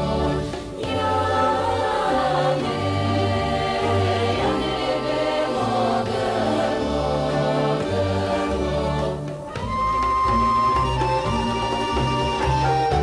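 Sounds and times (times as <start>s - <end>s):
voices singing long notes: 0.0s - 9.8s
instrumental accompaniment: 0.0s - 13.0s.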